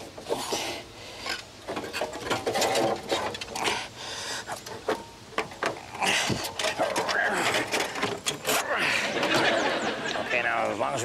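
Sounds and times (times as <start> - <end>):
metal tools clicking and scraping: 4.4 - 8.6.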